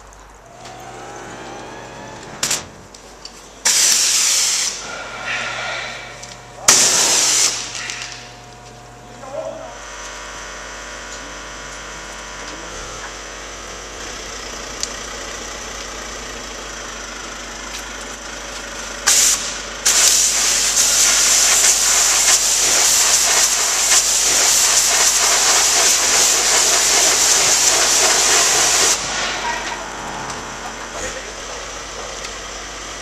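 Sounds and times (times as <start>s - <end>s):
pressure washer jet hissing: 0.4s - 8.6s, 19.0s - 32.6s
low background hum: 4.8s - 10.1s.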